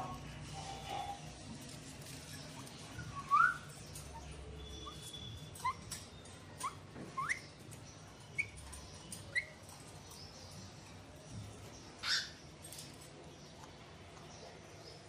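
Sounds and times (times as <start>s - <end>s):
parakeet whistled chirps: 3.0s - 3.7s.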